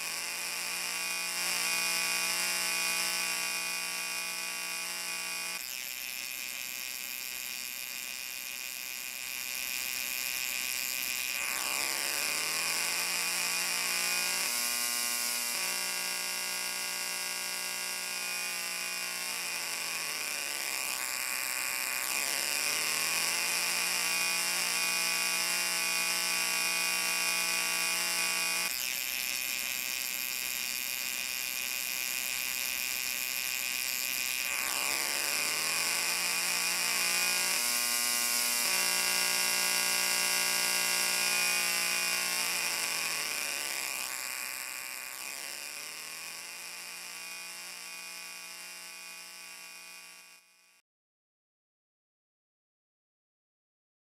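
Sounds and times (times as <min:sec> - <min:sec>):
buzzing drone with overtones: 0:00.0 - 0:50.8.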